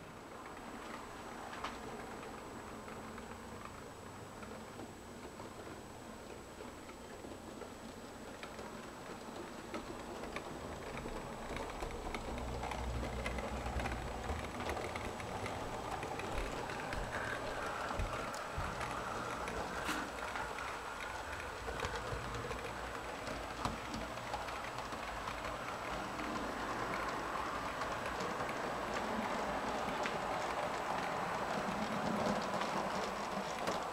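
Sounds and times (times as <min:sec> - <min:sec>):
wheels clicking over rail joints: 0:00.0 - 0:33.9
model train motor whirring: 0:10.2 - 0:33.9.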